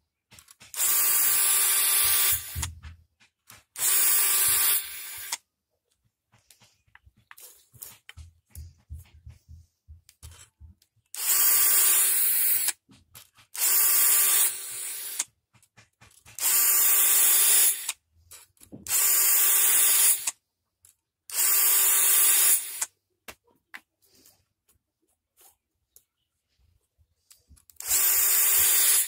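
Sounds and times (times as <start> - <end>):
drill motor whine: 0.8 - 2.7, 3.8 - 5.4, 11.2 - 12.7, 18.9 - 20.3, 27.8 - 29.0.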